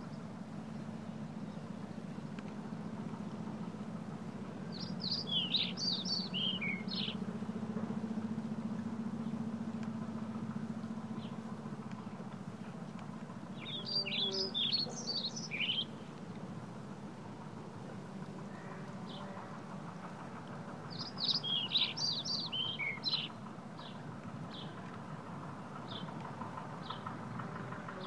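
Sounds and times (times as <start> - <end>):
low steady hum: 0.0 - 28.0
songbird chirping: 4.5 - 7.4, 10.6 - 16.5, 20.4 - 25.0.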